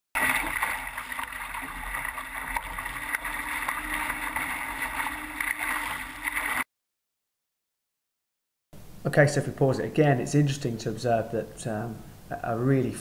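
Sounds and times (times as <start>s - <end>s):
hull rushing through water: 0.2s - 6.6s
faint steady hum: 8.8s - 13.0s.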